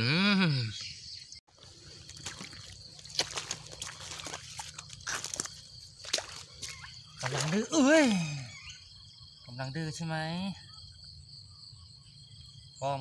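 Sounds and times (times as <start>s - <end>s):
shallow water sloshing: 1.5s - 8.1s.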